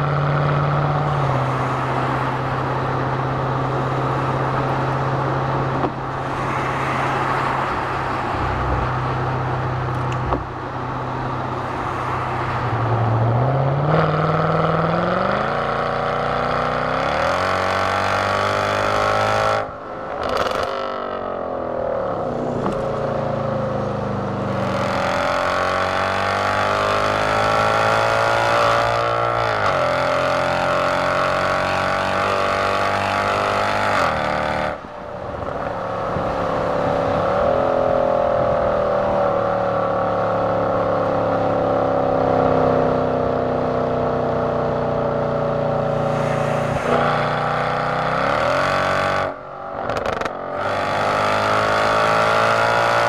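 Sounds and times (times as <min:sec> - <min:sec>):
car engine accelerating hard: 0:12.7 - 0:34.8, 0:35.4 - 0:53.0.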